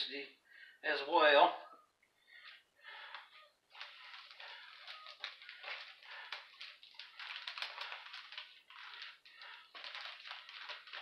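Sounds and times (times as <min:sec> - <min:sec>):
plastic sleeve crinkling: 0:02.3 - 0:11.0.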